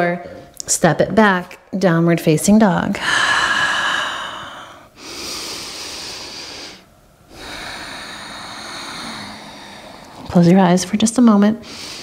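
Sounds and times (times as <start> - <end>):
woman breathing deeply: 3.0 - 10.4, 11.6 - 12.0.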